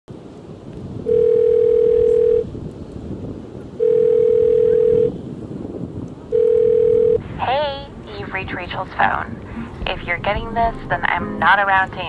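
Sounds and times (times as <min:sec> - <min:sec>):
low wind rumble: 0:00.1 - 0:12.0
telephone ringback tone: 0:01.1 - 0:02.5, 0:03.8 - 0:05.2, 0:06.3 - 0:07.2.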